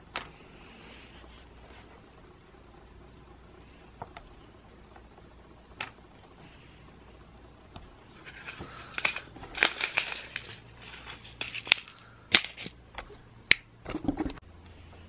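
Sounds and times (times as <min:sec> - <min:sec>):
small plastic gems clicking: 0:08.3 - 0:13.6.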